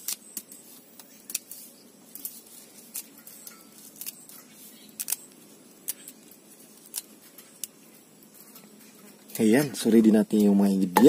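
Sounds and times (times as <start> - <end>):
leaves snapping off stems: 0.0 - 7.8.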